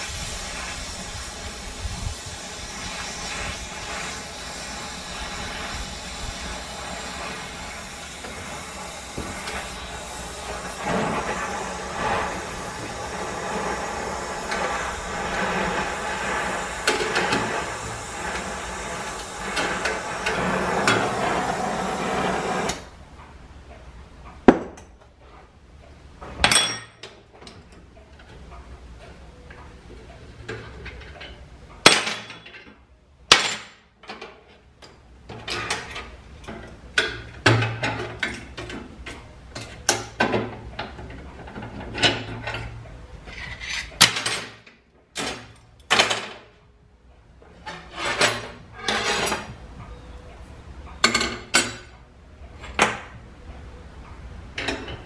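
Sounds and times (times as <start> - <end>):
torch hissing: 0.0 - 22.9.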